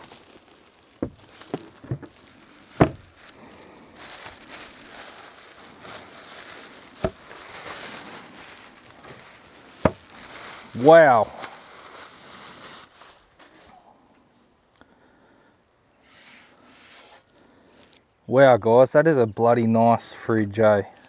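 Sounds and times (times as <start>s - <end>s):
plastic bag crinkling: 0.0s - 13.8s, 16.4s - 18.0s, 20.6s - 21.0s.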